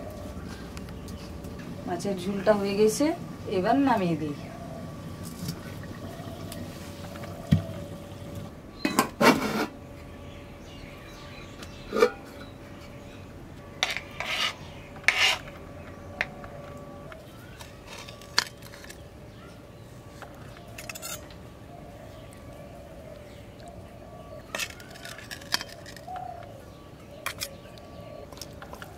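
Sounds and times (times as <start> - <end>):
metal utensils scraping pot: 11.9 - 12.5, 13.8 - 15.6, 20.6 - 21.3, 24.4 - 26.2, 27.2 - 27.6.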